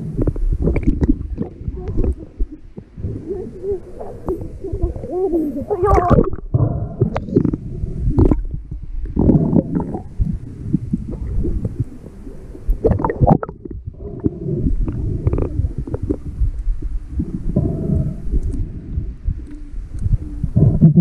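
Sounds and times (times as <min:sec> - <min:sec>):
underwater water churning: 0:00.0 - 0:21.0.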